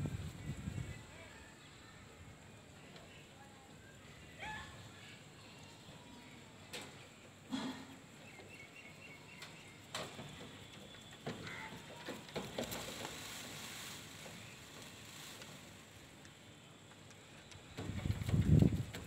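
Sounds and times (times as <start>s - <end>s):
distant small bird chirping: 8.1s - 15.3s.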